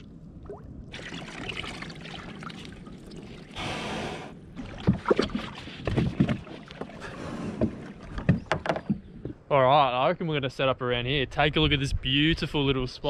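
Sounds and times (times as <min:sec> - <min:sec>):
water washing around hull: 0:00.0 - 0:08.6.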